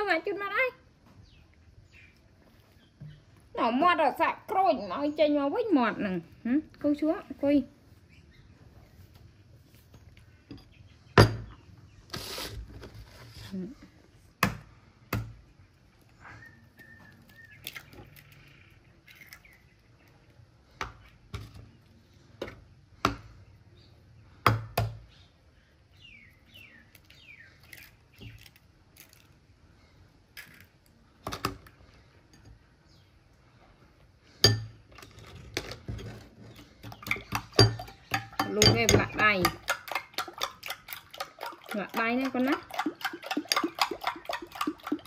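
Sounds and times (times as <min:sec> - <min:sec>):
eggs cracking: 0:17.1 - 0:21.1, 0:26.9 - 0:29.4, 0:34.4 - 0:45.0
metal spoon clinking in ceramic bowl: 0:37.0 - 0:41.8.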